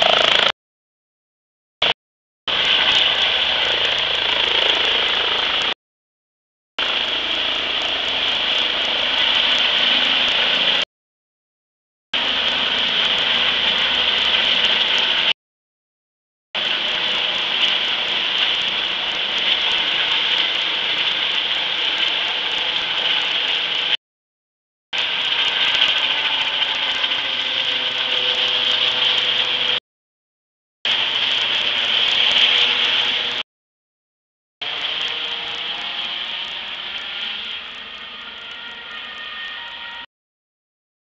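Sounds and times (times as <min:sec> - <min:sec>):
helicopter turbine and rotor: 0:00.0 - 0:00.6, 0:02.5 - 0:05.8, 0:06.8 - 0:10.8, 0:12.2 - 0:15.3, 0:16.6 - 0:24.0, 0:25.0 - 0:29.8, 0:30.9 - 0:33.4, 0:34.6 - 0:40.1.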